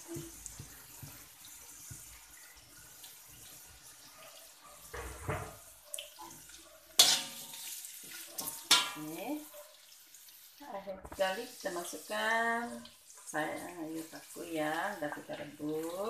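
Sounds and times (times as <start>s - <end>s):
food sizzling in oil: 0.0s - 16.0s
metal spatula scraping wok: 6.9s - 9.1s
spatula clanking against wok: 7.0s - 7.7s, 8.4s - 9.2s.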